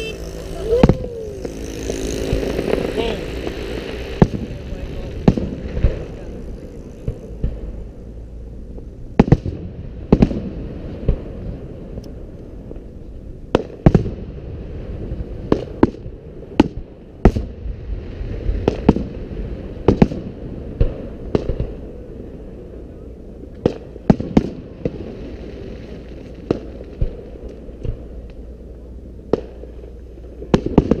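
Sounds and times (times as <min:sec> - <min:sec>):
low rumble: 0:00.0 - 0:31.0
firework shells booming: 0:00.7 - 0:07.8.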